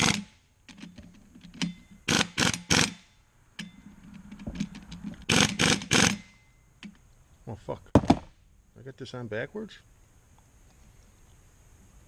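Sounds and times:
impact wrench bursts: 0.0s - 0.4s, 1.6s - 3.7s, 5.2s - 6.5s.

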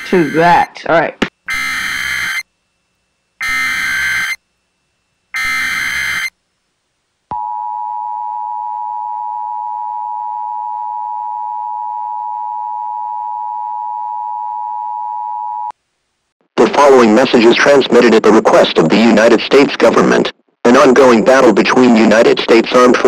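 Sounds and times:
steady two-tone alert signal: 0.0s - 0.8s, 1.4s - 2.5s, 3.4s - 4.4s, 5.3s - 6.4s
harsh buzzing data bursts: 0.0s - 6.4s.

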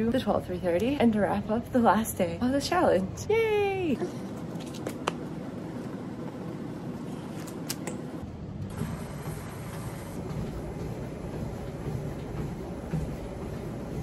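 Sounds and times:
treadmill motor and belt: 5.2s - 14.0s.

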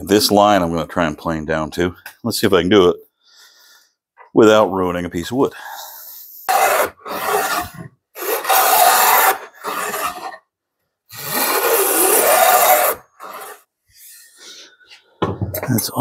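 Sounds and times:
hand plane shaving wood: 6.5s - 10.4s, 11.1s - 13.7s.

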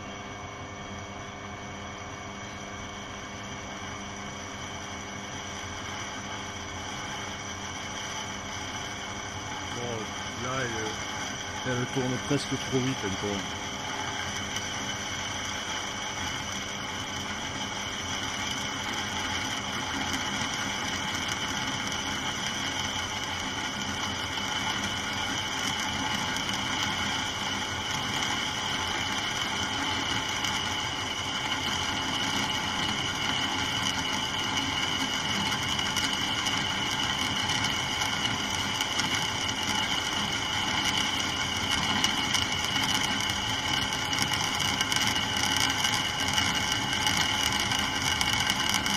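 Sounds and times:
drill press motor hum: 0.0s - 48.9s
drill bit scraping metal: 23.2s - 48.9s.

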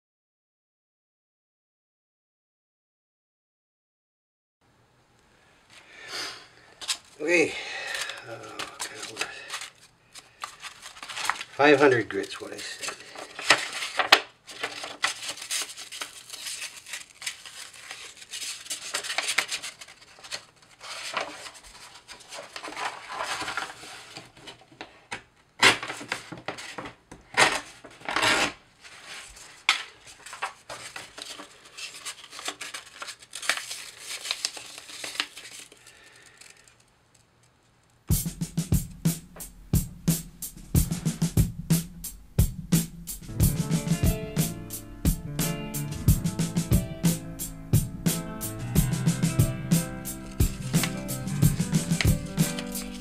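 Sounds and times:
music with drums: 38.1s - 53.0s.

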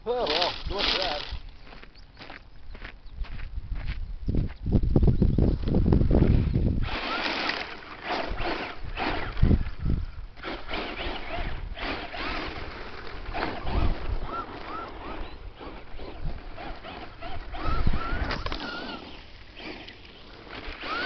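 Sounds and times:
toy truck tyres spraying gravel: 6.8s - 9.6s, 10.4s - 21.0s.

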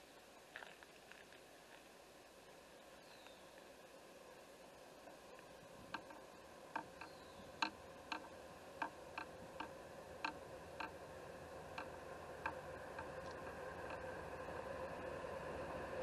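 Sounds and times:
faint steady hum: 0.0s - 16.0s
sharp irregular ticks: 5.8s - 11.0s, 11.6s - 14.2s
distant freight train rumble: 5.9s - 16.0s.

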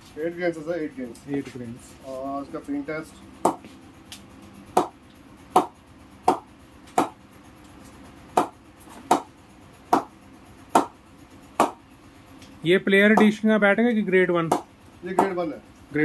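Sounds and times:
ball knocking on cricket bat: 3.4s - 3.6s, 4.8s - 5.0s, 5.6s - 7.2s, 8.4s - 9.3s, 9.9s - 10.1s, 10.8s - 11.0s, 14.5s - 15.4s.

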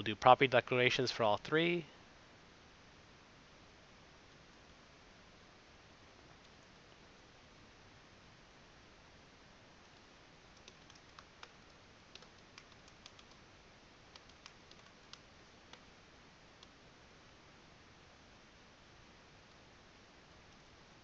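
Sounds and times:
faint keyboard typing: 9.8s - 16.0s.

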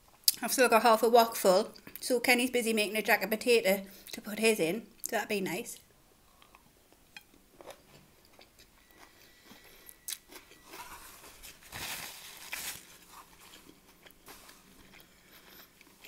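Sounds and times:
tissue rustling: 10.8s - 13.6s
close-up chewing: 12.5s - 16.0s.

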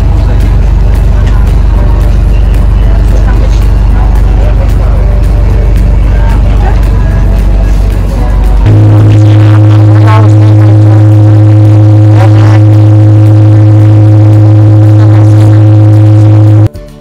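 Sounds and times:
low-pitched boat drone: 0.0s - 16.7s
faint voices: 0.1s - 10.6s.

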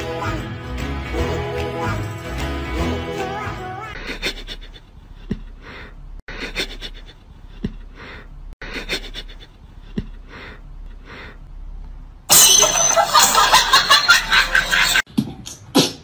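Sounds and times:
music: 0.0s - 3.9s
soft breathy huffs: 4.9s - 11.5s.

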